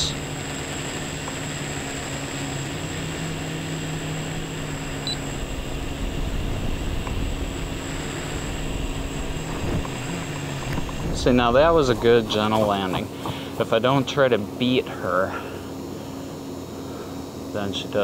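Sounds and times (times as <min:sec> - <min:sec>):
drone propellers humming: 0:00.0 - 0:18.0
low rumble: 0:05.0 - 0:12.6.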